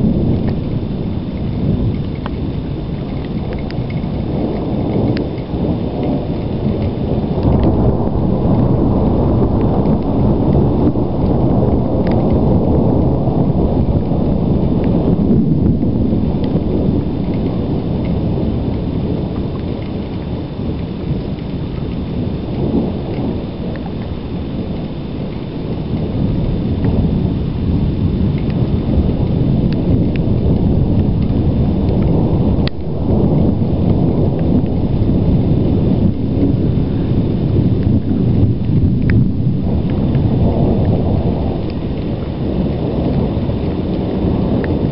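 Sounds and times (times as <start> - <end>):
rumbling thunder: 0.0 - 44.9
faint sharp ticks: 1.4 - 7.8.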